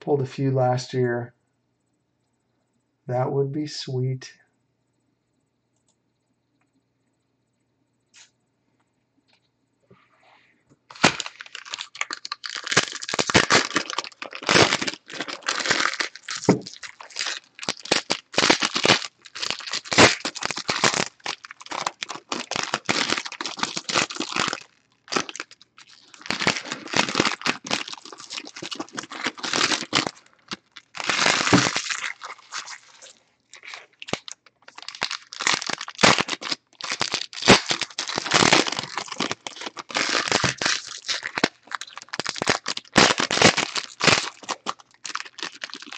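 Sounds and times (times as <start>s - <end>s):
foil wrappers crinkling and tearing: 10.9s - 45.9s.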